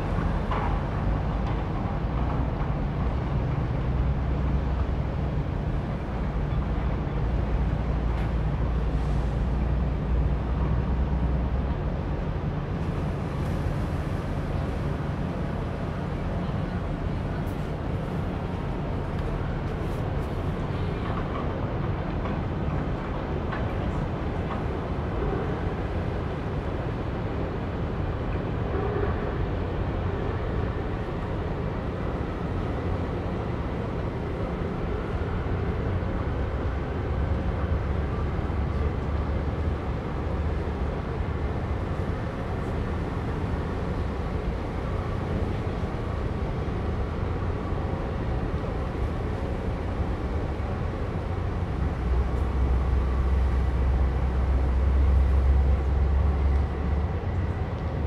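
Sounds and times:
ship engine rumble and drone: 0.0 - 58.0.

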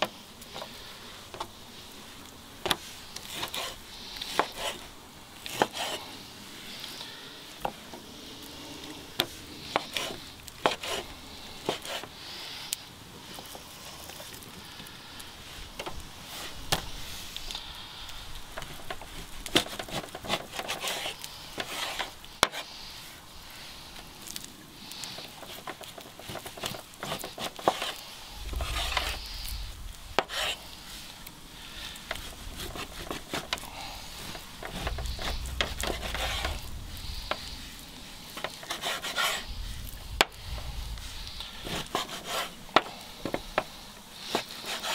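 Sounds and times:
low rumble: 28.3 - 30.2, 34.0 - 38.3, 39.4 - 41.9.

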